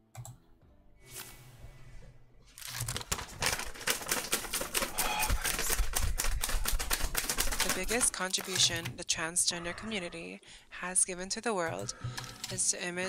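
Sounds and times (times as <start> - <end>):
typewriter keys clattering: 2.6 - 9.0.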